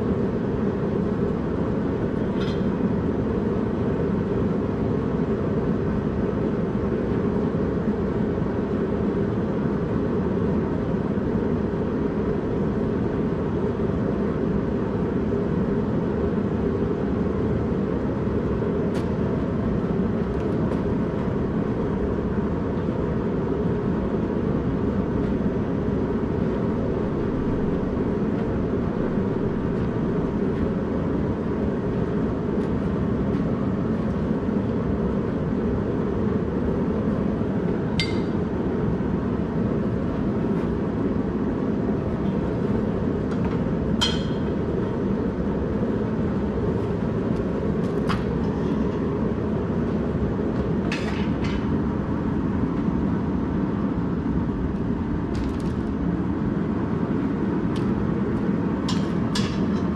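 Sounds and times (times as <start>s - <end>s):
gas forge burner roaring: 0.0s - 59.9s
steel clinking on steel: 38.0s - 38.4s.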